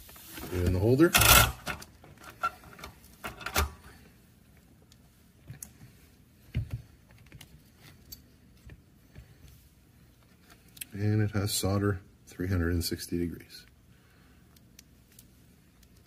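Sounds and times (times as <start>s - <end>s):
metal parts clicking and knocking: 1.1s - 3.8s.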